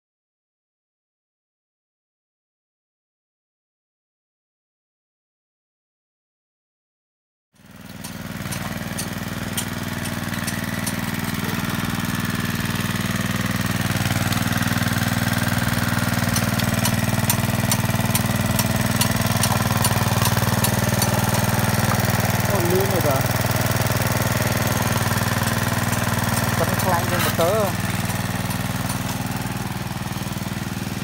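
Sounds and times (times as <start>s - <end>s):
small petrol engine running: 7.6s - 31.0s.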